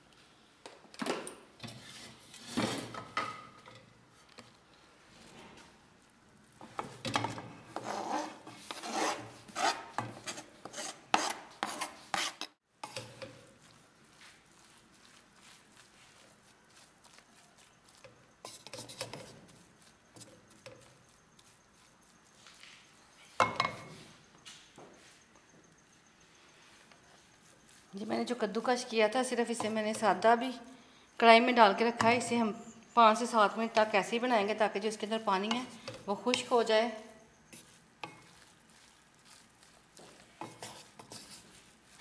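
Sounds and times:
spatula scraping metal pan: 0:07.2 - 0:13.4, 0:18.4 - 0:19.5, 0:37.5 - 0:41.7.

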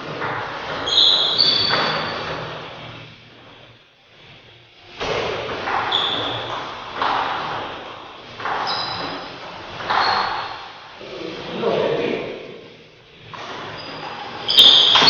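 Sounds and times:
shoes squeaking on tile floor: 0:00.0 - 0:02.9, 0:05.7 - 0:10.8, 0:13.2 - 0:15.0
table tennis ball hits: 0:05.0 - 0:10.8, 0:14.5 - 0:15.0.

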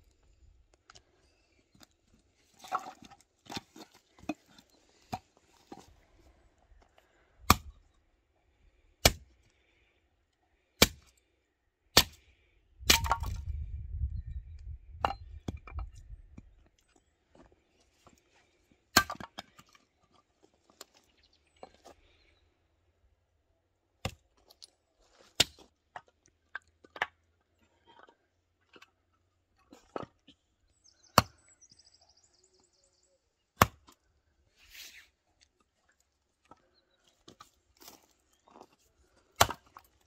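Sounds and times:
hatchet chopping wood: 0:07.4 - 0:07.8, 0:09.0 - 0:09.2, 0:10.8 - 0:11.1, 0:12.0 - 0:12.2, 0:12.9 - 0:13.4, 0:24.0 - 0:24.2, 0:31.1 - 0:31.4, 0:33.6 - 0:34.0, 0:39.4 - 0:39.8.

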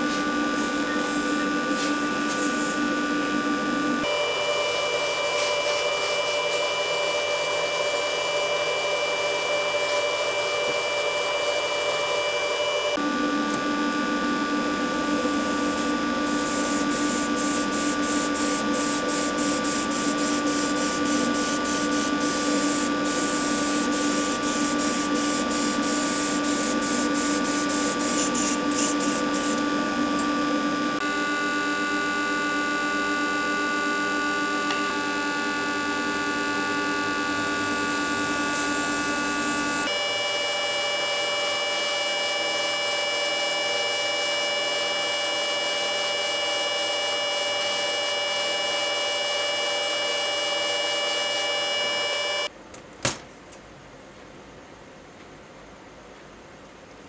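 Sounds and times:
small electric motor humming: 0:04.0 - 0:13.0, 0:14.7 - 0:30.9, 0:37.3 - 0:52.5.

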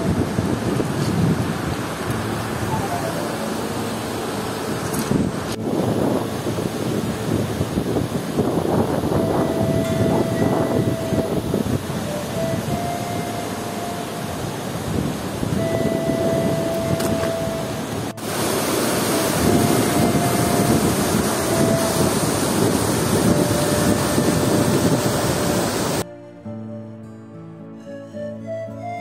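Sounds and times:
river rushing over boulders: 0:00.0 - 0:26.0
thin whistle-like tone: 0:02.6 - 0:04.0, 0:08.7 - 0:18.2, 0:18.9 - 0:29.0.

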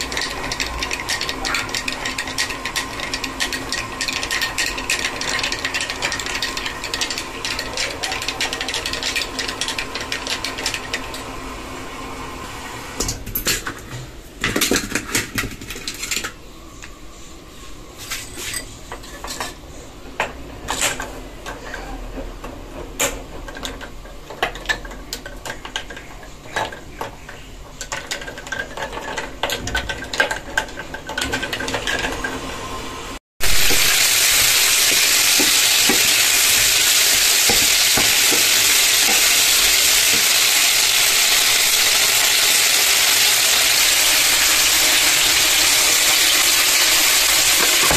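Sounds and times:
chicken sizzling in a pan: 0:33.4 - 0:47.9.

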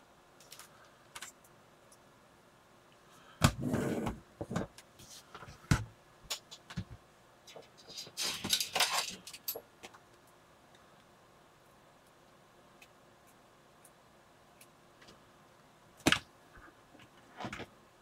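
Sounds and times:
wires rustling and clicking: 0:00.4 - 0:02.1, 0:06.3 - 0:15.3.

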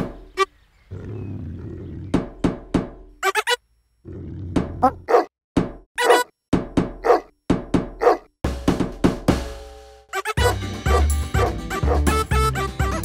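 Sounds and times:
cartoon thuds: 0:02.1 - 0:03.1, 0:05.6 - 0:09.6
short squeaky yelp: 0:06.0 - 0:06.3.

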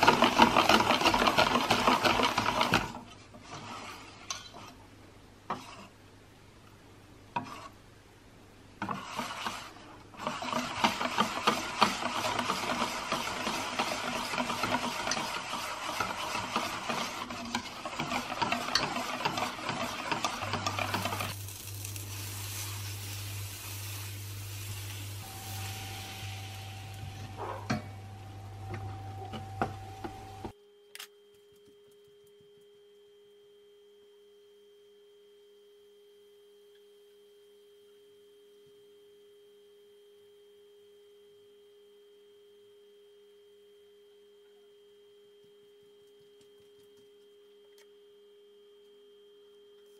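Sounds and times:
steady hiss with low hum: 0:00.0 - 0:49.9
whisk clinking in metal bowl: 0:10.9 - 0:21.4
faint steady tone: 0:22.9 - 0:49.9.

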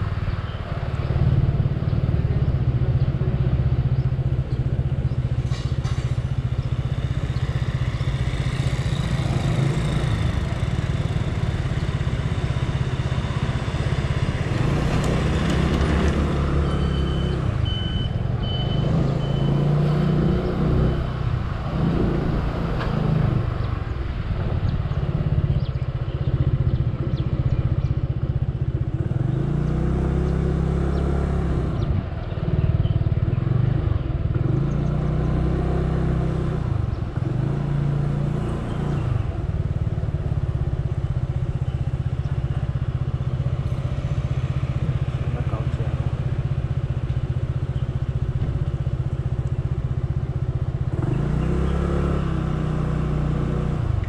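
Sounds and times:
scooter engine running: 0:06.4 - 0:19.5.

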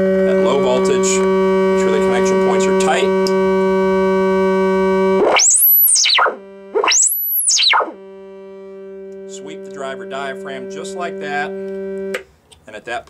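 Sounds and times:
rising and falling tone sweeps: 0:00.0 - 0:12.2
steady test tone: 0:00.0 - 0:12.2.

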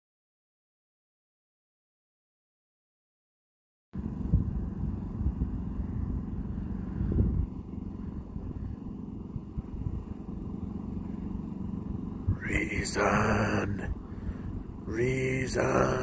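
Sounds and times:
low uneven rumble: 0:04.0 - 0:16.0.

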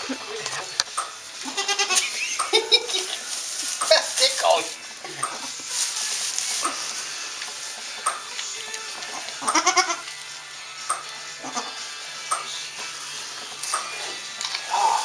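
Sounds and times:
goat bleating: 0:01.4 - 0:02.2, 0:09.1 - 0:10.1, 0:11.4 - 0:11.8
straw bedding rustling: 0:01.4 - 0:09.4, 0:14.4 - 0:15.0.

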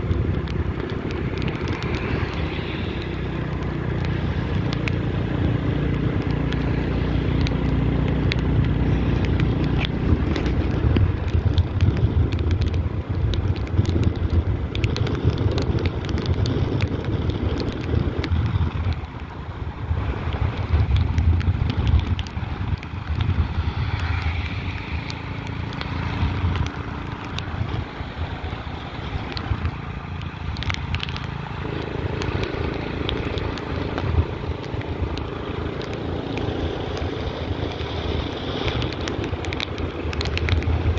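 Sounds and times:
motorbike engine running: 0:00.0 - 0:19.3
small clicks and crackles: 0:00.0 - 0:40.9
wind buffeting microphone: 0:00.0 - 0:40.9.

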